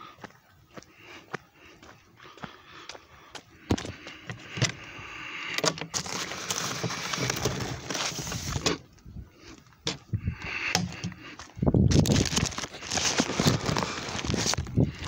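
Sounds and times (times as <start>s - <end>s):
mail rustling and scraping: 5.9s - 8.8s, 11.9s - 14.7s.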